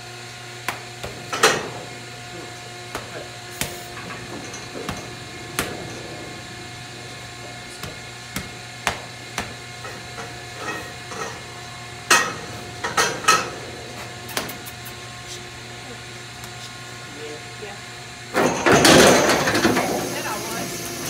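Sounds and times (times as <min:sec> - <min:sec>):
steady low hum: 0:00.0 - 0:21.0
metal knocks and clanks: 0:03.0 - 0:14.2, 0:18.4 - 0:20.0.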